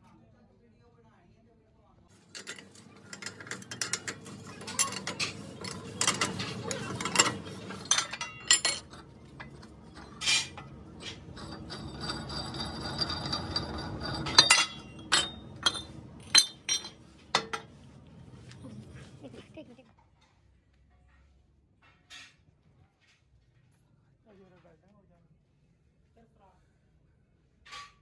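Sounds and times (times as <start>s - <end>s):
metallic clinks and knocks: 2.2s - 19.1s
low machine hum: 2.2s - 19.8s.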